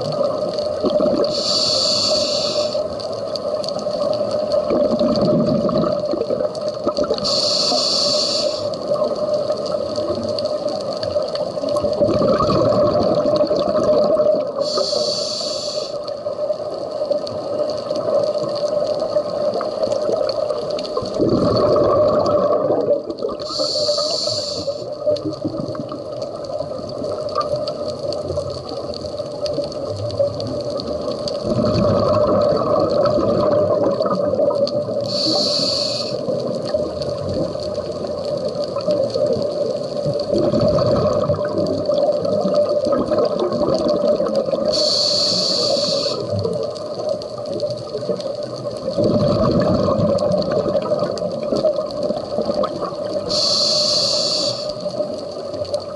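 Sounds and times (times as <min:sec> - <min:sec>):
exhaled air bubbling underwater: 0:00.0 - 0:55.9
regulator hiss: 0:01.2 - 0:03.9, 0:07.0 - 0:09.3, 0:14.4 - 0:16.5, 0:23.3 - 0:25.1, 0:34.9 - 0:36.6, 0:44.5 - 0:47.2, 0:53.0 - 0:55.6.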